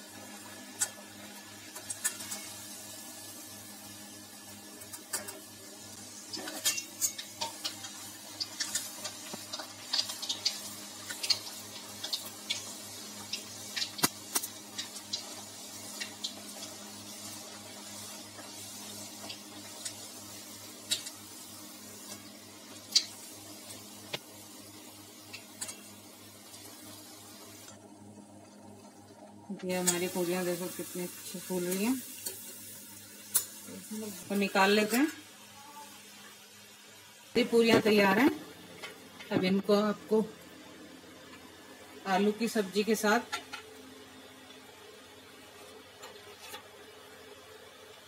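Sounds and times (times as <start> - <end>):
oil crackling and popping: 0.7 - 2.8, 4.6 - 27.8.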